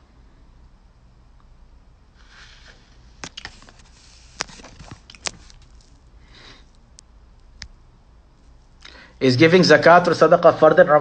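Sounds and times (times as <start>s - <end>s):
man breathing faintly: 6.1s - 6.9s, 8.7s - 9.2s.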